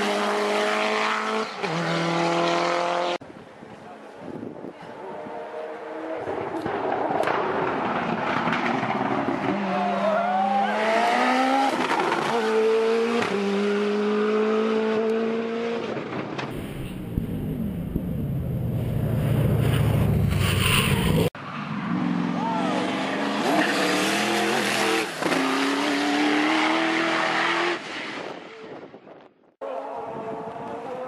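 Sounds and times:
windy rushing noise: 16.5 - 22.0.

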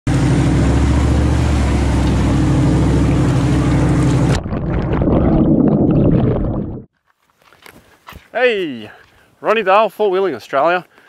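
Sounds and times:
vehicle engine running: 0.1 - 4.4
water rushing and splashing: 0.1 - 6.8.

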